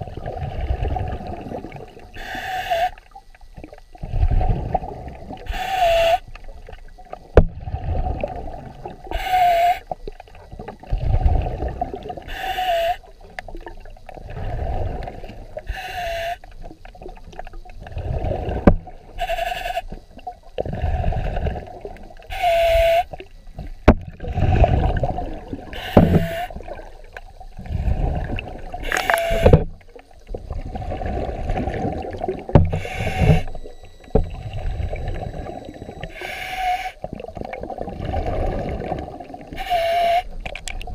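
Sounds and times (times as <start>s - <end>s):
underwater rumbling: 0.0s - 40.9s
snorkel breathing: 2.1s - 3.2s, 4.0s - 6.4s, 9.0s - 10.0s, 10.9s - 13.2s, 14.2s - 16.6s, 17.8s - 23.2s, 24.2s - 26.9s, 27.5s - 29.6s, 30.5s - 37.2s, 38.0s - 40.5s.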